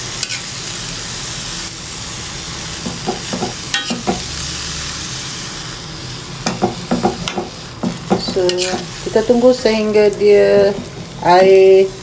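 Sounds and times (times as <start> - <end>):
noodles sizzling in a wok: 0.0 - 12.0
metal spatula scraping a pan: 3.0 - 4.3, 7.2 - 11.9.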